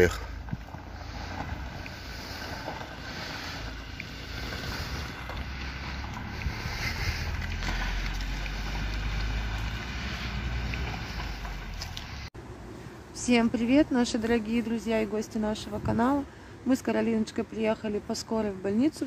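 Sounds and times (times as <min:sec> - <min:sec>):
wind buffeting microphone: 0:00.0 - 0:12.3
van engine rumble: 0:00.0 - 0:12.4.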